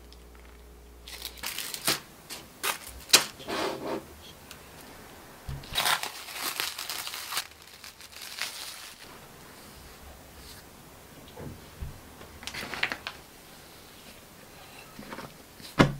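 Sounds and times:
cling film crinkling: 0.1s - 3.4s, 5.6s - 9.1s, 12.4s - 13.3s
foil moulds crinkling and tapping: 12.4s - 13.2s.

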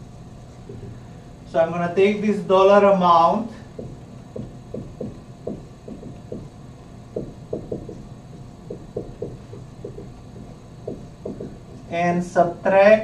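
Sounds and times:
low room hum: 0.0s - 13.0s
marker writing on whiteboard: 3.7s - 12.0s.

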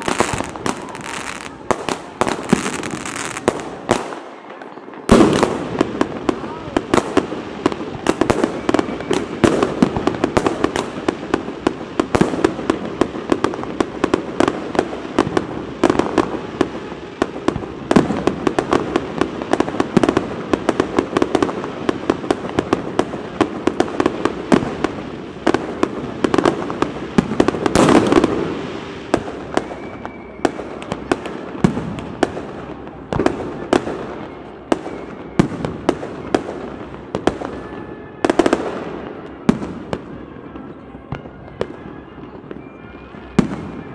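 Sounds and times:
firework crackle: 0.0s - 43.9s.

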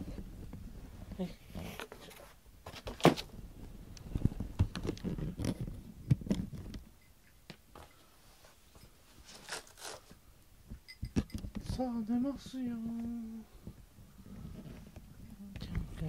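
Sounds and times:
household items rustling and scraping: 0.0s - 3.4s, 4.1s - 7.0s, 7.7s - 15.3s.

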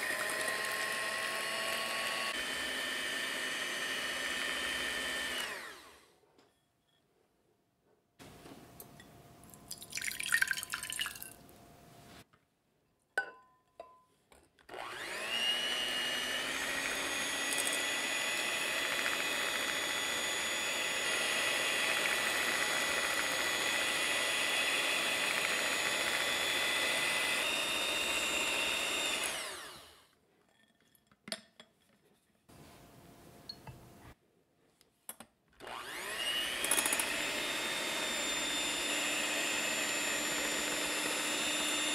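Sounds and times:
electric hand mixer whirring: 0.0s - 6.1s, 14.7s - 30.1s, 35.6s - 41.9s
glass bowl clinking: 8.8s - 11.4s, 13.2s - 14.1s.

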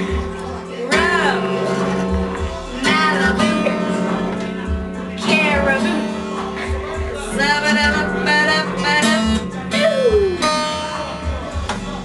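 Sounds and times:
acoustic guitar strumming: 0.0s - 12.0s
woman singing: 0.8s - 1.7s, 2.7s - 11.1s.

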